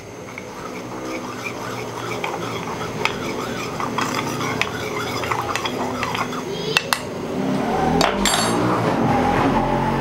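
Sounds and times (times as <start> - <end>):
spoon stirring in a bowl: 0.0 - 7.2.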